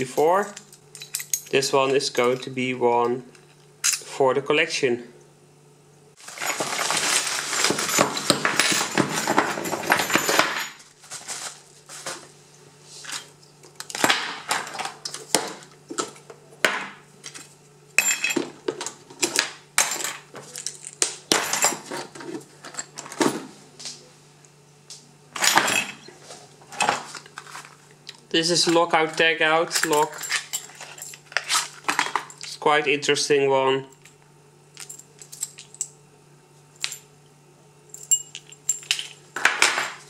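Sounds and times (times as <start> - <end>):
padlocks and keys clinking: 0.0 - 2.5, 29.7 - 32.5, 34.0 - 36.0, 37.9 - 39.2
paper wrapping crumpling: 6.2 - 8.2, 10.8 - 12.3.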